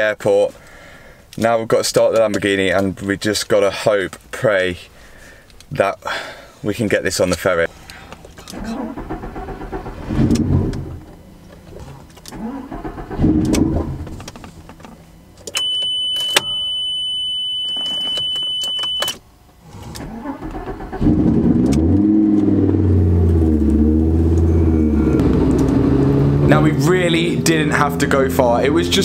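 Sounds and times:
low rumbles: 0:08.1 - 0:15.4, 0:20.9 - 0:29.0
sports car engine revving: 0:08.6 - 0:14.3, 0:19.7 - 0:29.0
steady high beep: 0:15.6 - 0:19.2.

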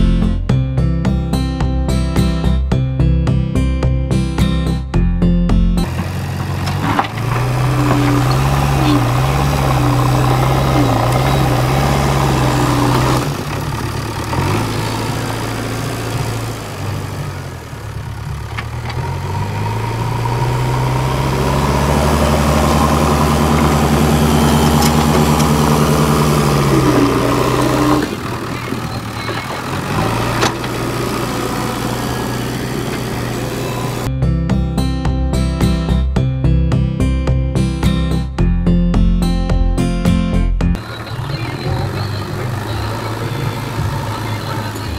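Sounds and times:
diesel engine revving under load: 0:05.8 - 0:34.1, 0:40.7 - 0:44.9.

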